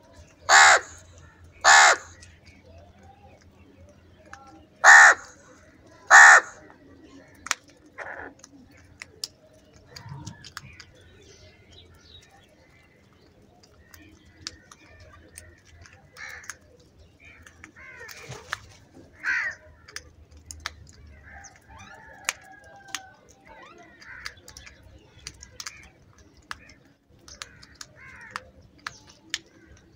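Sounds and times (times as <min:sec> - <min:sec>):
beaks pecking on concrete: 0:00.1 - 0:29.9
crows cawing: 0:00.5 - 0:02.2, 0:04.8 - 0:05.4, 0:06.1 - 0:06.6, 0:16.2 - 0:16.6, 0:19.2 - 0:19.6, 0:27.4 - 0:28.4.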